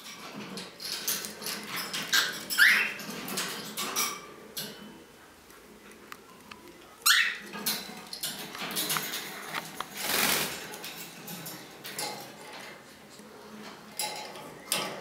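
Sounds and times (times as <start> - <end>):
parrot squawking: 2.2 - 3.0, 7.0 - 7.5.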